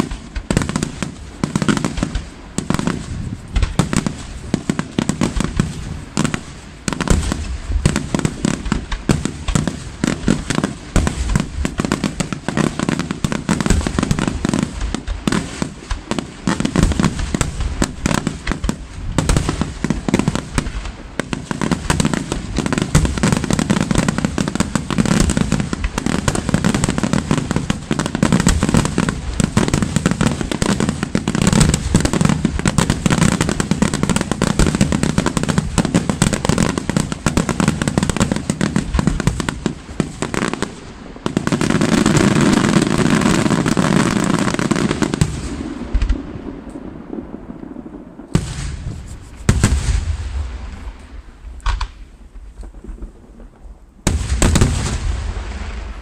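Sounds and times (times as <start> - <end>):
firework crackle: 0.0 - 56.0
firework shells bursting: 44.9 - 56.0.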